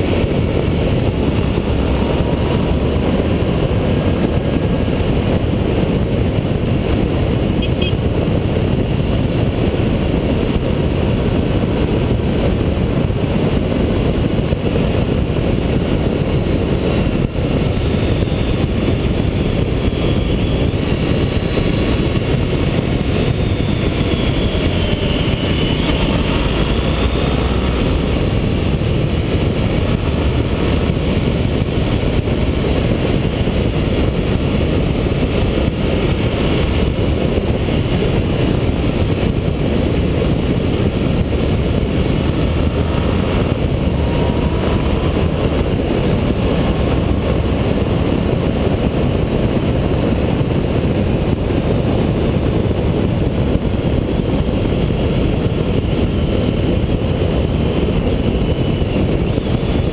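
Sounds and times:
motorcycle engine running: 0.0s - 59.9s
wind rush: 0.0s - 59.9s
faint whine: 15.5s - 51.4s.

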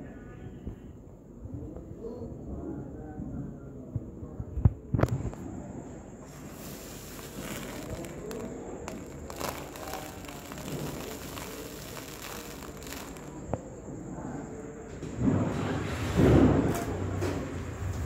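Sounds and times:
faint background voices: 0.0s - 17.6s
room noise: 5.0s - 18.0s.

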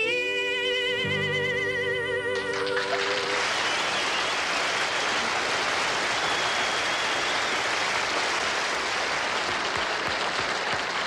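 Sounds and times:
audience applauding: 2.4s - 11.0s.

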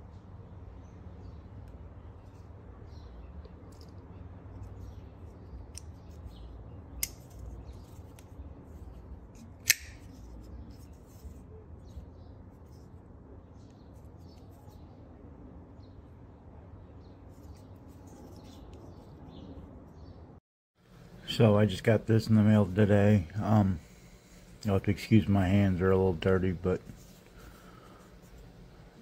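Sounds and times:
folding knife blade clicking: 9.4s - 10.1s.

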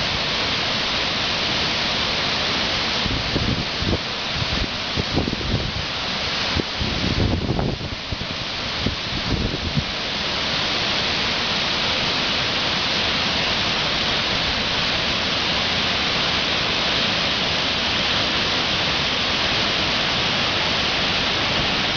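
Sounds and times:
waterfall rushing: 0.0s - 21.9s
wind buffeting microphone: 6.5s - 9.9s.

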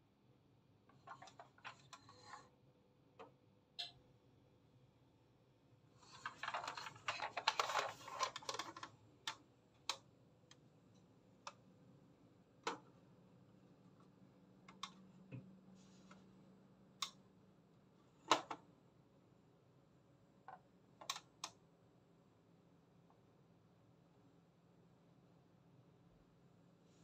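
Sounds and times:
plastic toy clicking and rustling: 6.2s - 8.9s.

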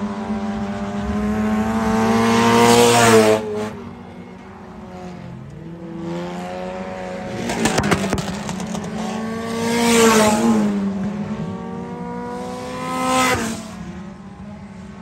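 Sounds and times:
steady engine drone: 0.0s - 15.0s
stock car passing by: 0.0s - 15.0s.

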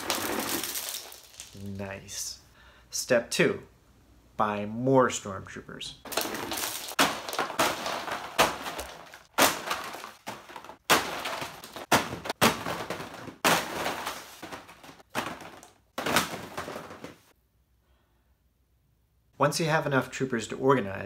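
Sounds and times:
plastic packages clattering onto heap: 0.0s - 1.7s, 6.1s - 17.3s.

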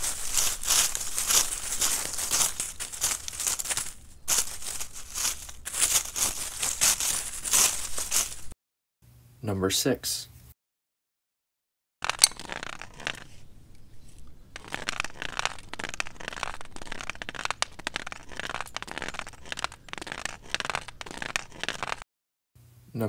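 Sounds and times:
cane scraping over stones: 0.0s - 8.5s, 12.0s - 22.0s
cane tip clicking on stones: 12.0s - 22.0s.

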